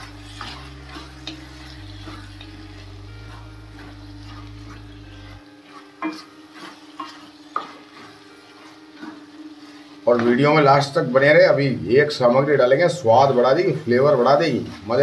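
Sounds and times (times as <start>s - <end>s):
steady low hum: 0.0s - 5.6s
light sizzle: 0.0s - 15.0s
spatula stirring food in pan: 0.0s - 15.0s
spatula clinking against pan: 6.0s - 8.1s.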